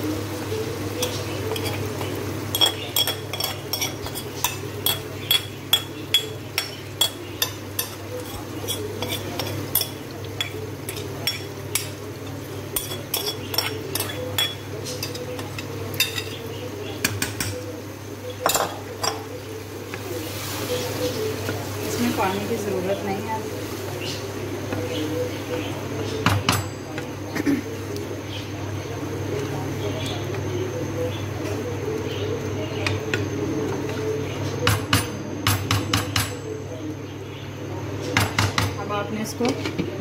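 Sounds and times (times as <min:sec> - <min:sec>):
spoons stirring in wok: 0:00.4 - 0:17.4.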